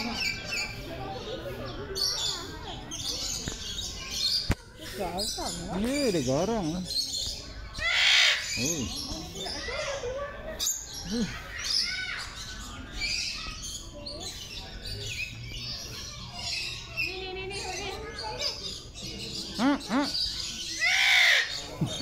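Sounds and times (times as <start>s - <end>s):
birds chirping and squawking: 0.0s - 22.0s.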